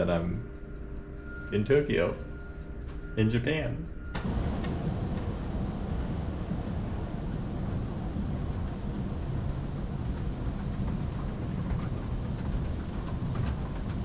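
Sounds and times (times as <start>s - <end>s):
escalator rumbling: 0.0s - 14.0s.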